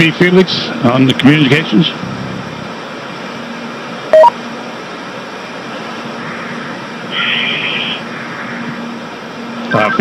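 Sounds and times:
two-tone electronic beep: 0:04.1 - 0:04.4
radio static hiss: 0:05.8 - 0:08.8, 0:09.6 - 0:10.0.

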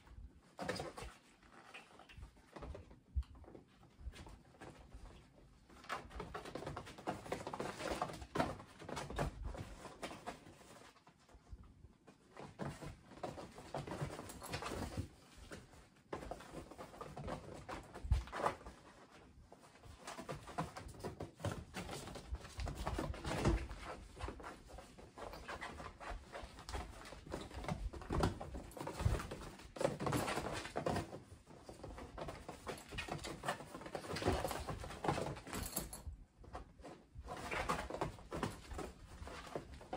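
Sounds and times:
kittens pattering and scuffling: 0:00.0 - 0:39.9.

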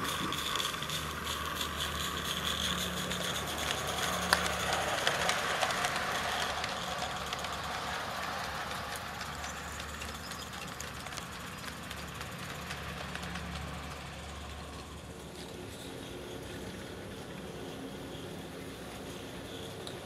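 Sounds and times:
steam hiss: 0:00.0 - 0:07.2
steam locomotive chuffing: 0:00.0 - 0:20.0
wagons clicking on track: 0:00.0 - 0:20.0.

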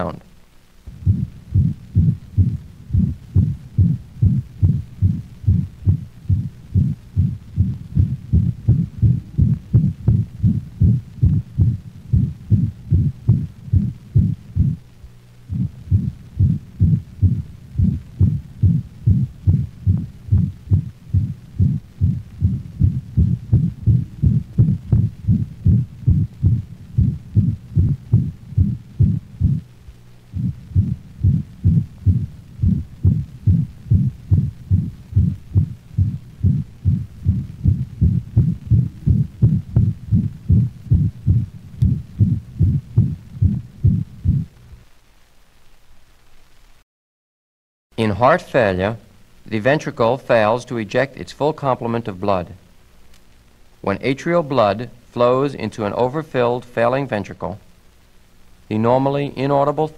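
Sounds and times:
dog heartbeat with murmur: 0:00.9 - 0:14.8, 0:15.5 - 0:29.6, 0:30.4 - 0:44.5.

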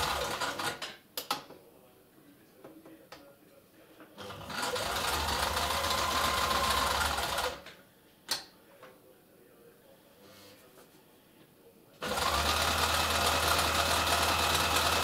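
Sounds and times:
sewing machine motor whine: 0:00.0 - 0:00.8, 0:04.2 - 0:07.6, 0:12.0 - 0:15.0.

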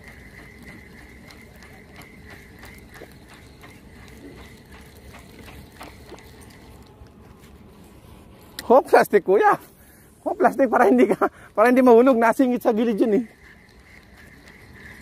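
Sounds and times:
fishing reel clicking: 0:00.0 - 0:07.0, 0:11.5 - 0:15.0
fishing reel whir: 0:00.0 - 0:08.7, 0:10.1 - 0:15.0.

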